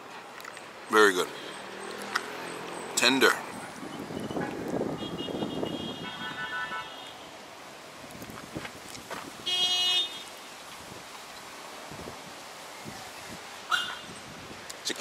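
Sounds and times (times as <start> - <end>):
street traffic: 0.0 - 15.0
vehicle horn toot: 3.9 - 7.3, 9.4 - 10.3, 13.7 - 14.1.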